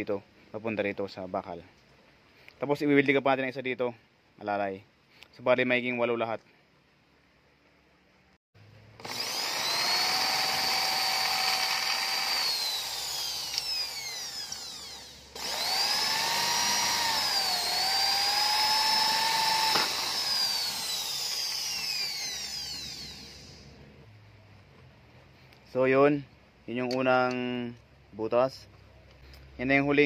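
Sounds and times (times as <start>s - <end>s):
electric drill whining: 9.0s - 23.8s.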